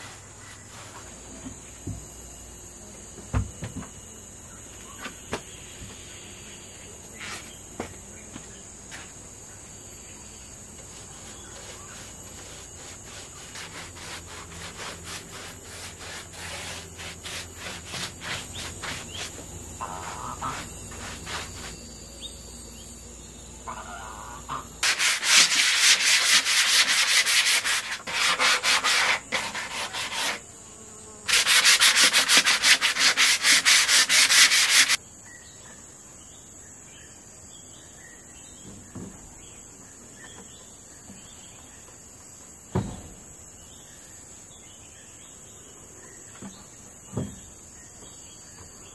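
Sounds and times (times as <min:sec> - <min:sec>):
sandpaper rubbing on wood: 0:11.0 - 0:21.8, 0:24.8 - 0:30.4, 0:31.3 - 0:35.0.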